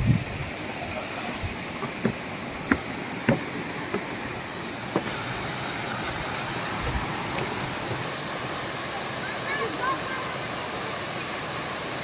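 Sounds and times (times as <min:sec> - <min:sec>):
waterfall rushing over boulders: 0:00.0 - 0:12.0
sharp knocks: 0:01.8 - 0:04.2, 0:04.9 - 0:05.1.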